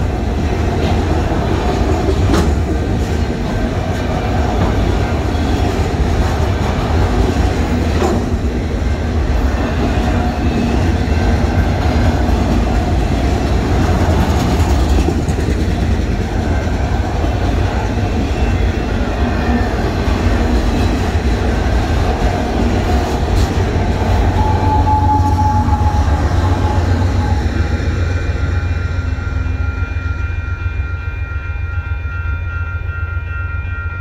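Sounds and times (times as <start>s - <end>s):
train wheels clattering on rails: 0.0s - 28.6s.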